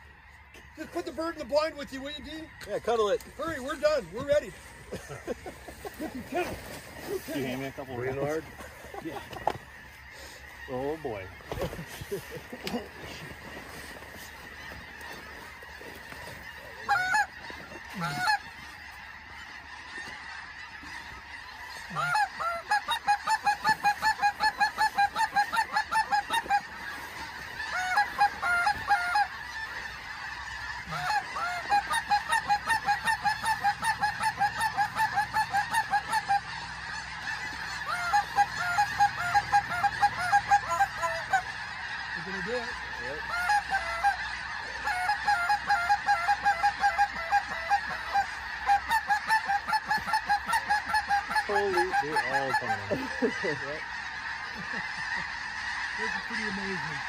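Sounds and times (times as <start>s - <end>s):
geese honking: 0.0s - 57.0s.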